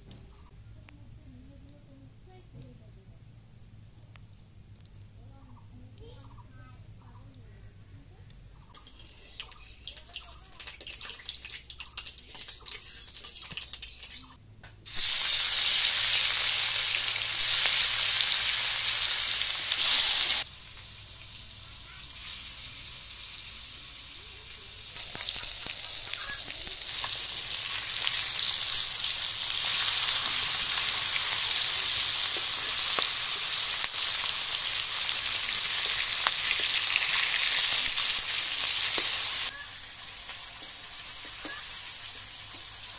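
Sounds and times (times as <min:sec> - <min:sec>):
fish frying in hot oil: 0:08.8 - 0:42.9.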